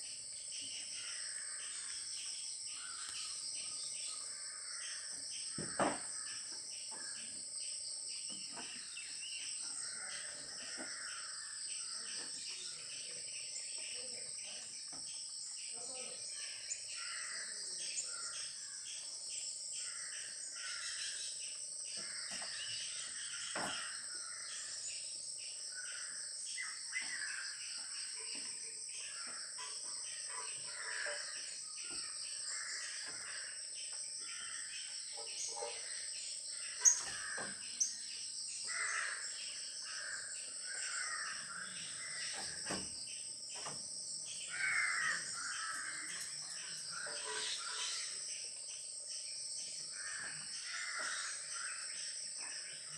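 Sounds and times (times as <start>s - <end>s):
insects chirring: 0.0s - 52.9s
birds calling: 29.0s - 48.5s, 49.8s - 52.9s.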